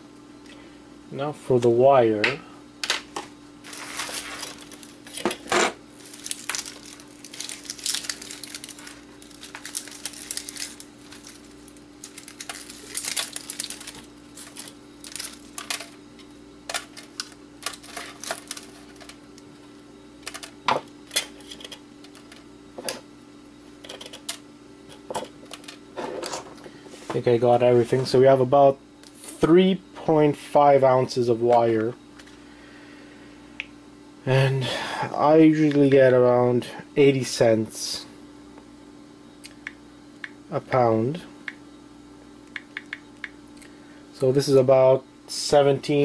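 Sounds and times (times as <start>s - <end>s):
wire rustling and clicking: 3.7s - 19.2s.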